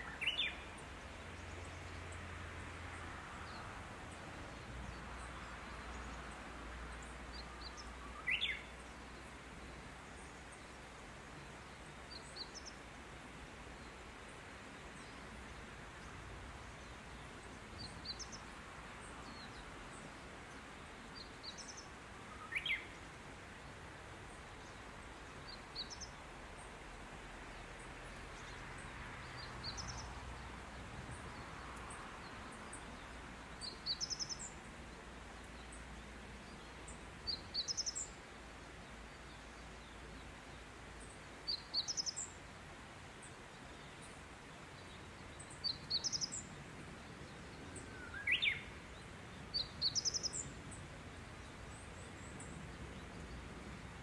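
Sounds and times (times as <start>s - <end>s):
open-air background hiss: 0.0s - 54.0s
small birds chirping: 0.0s - 54.0s.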